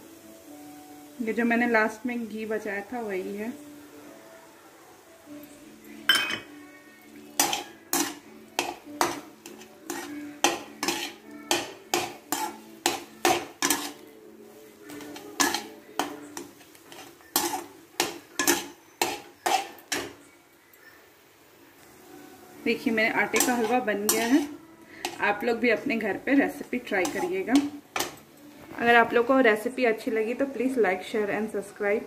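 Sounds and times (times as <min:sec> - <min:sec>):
metal spatula clanking in a pan: 0:07.4 - 0:14.1, 0:14.8 - 0:20.2, 0:23.2 - 0:25.5, 0:26.5 - 0:28.2.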